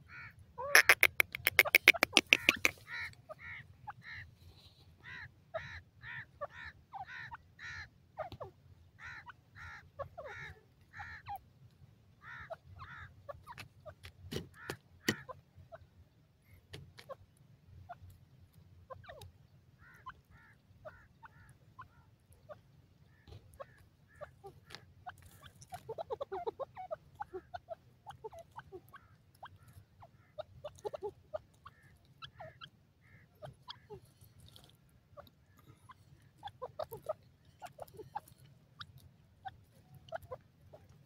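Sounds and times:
sharp clicks: 0.8 - 2.8.

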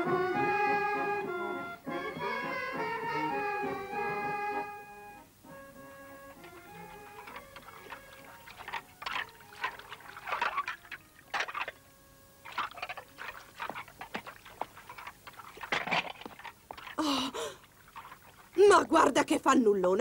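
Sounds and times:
water splashing in a tub: 6.4 - 19.4.

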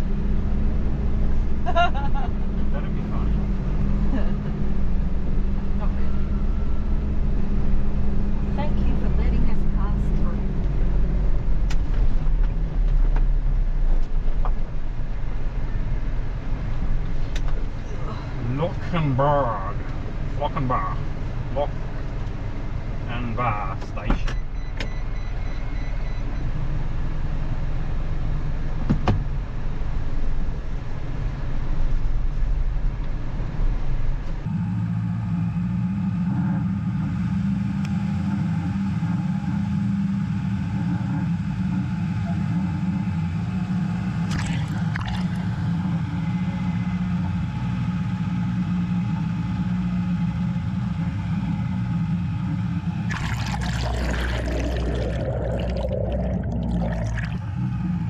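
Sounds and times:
diesel truck engine running: 0.0 - 58.0
water splashing and bubbling: 44.2 - 45.6, 53.1 - 57.8.

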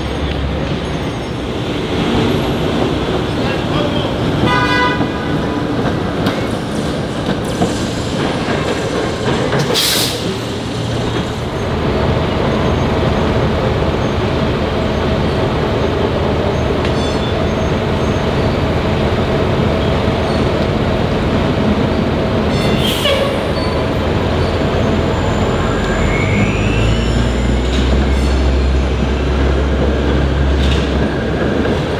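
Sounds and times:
city traffic: 0.0 - 31.9
streetcar running: 0.0 - 31.9
hiss of air: 9.7 - 10.4.

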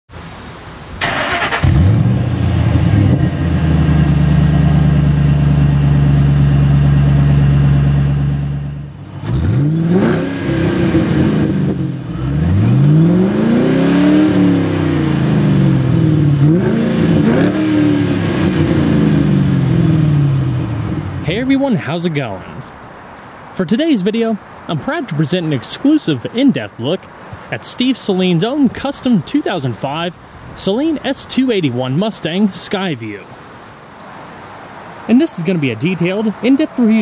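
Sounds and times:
car engine revving: 1.0 - 21.4
car engine starting: 1.0 - 22.8.

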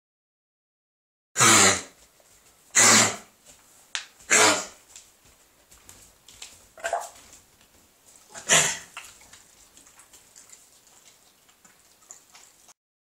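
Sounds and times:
dog coughing: 1.4 - 2.0, 2.7 - 3.3, 4.3 - 4.8, 8.3 - 9.0.

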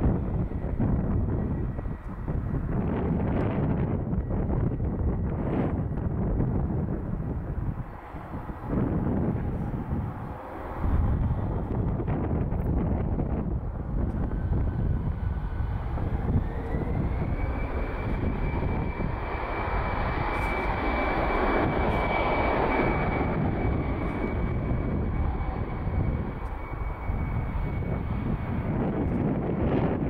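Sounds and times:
jet engines spooling up: 0.0 - 30.0.

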